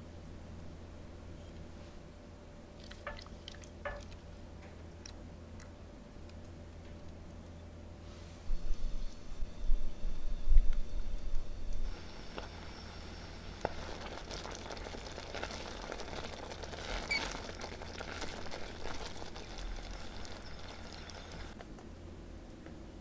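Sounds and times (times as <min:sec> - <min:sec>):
sauce simmering with small pops: 0:02.8 - 0:06.5, 0:13.6 - 0:21.7.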